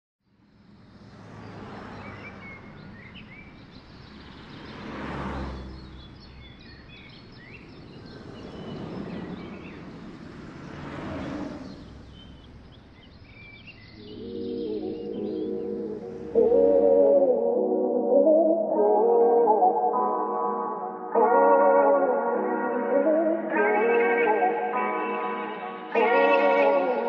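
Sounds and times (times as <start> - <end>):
distant traffic: 0.3 - 23.8
vehicles passing by: 0.3 - 27.0
birds chirping: 0.4 - 17.7.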